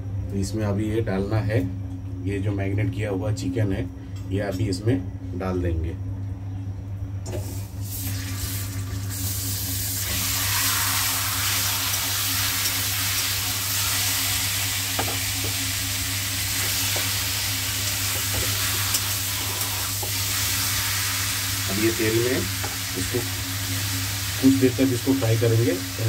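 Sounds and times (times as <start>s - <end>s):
chicken sizzling in hot oil: 7.6s - 26.0s.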